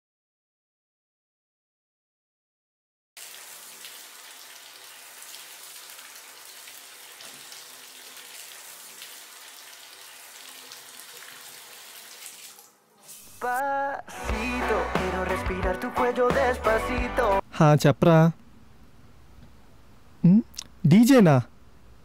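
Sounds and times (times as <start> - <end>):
shower water spraying: 3.2 - 13.4.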